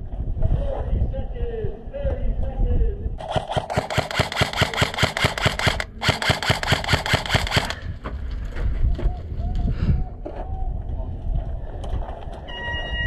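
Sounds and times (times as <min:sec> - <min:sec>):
airsoft rifle automatic fire: 0:03.2 - 0:07.8.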